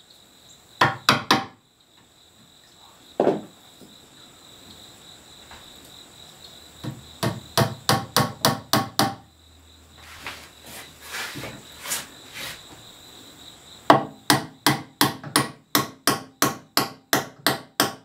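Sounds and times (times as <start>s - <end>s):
high insect trill: 0.0s - 18.0s
hammer striking wooden wedge: 0.8s - 1.6s, 6.8s - 9.2s, 13.9s - 18.0s.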